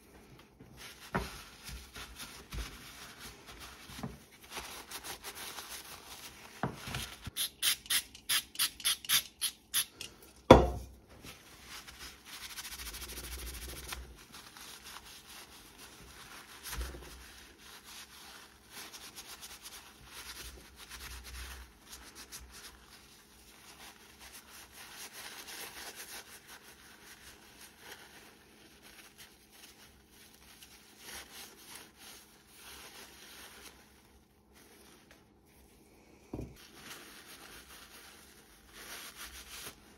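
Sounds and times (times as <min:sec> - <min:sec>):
cloth wiping metal and plastic: 0:36.6 - 0:39.9.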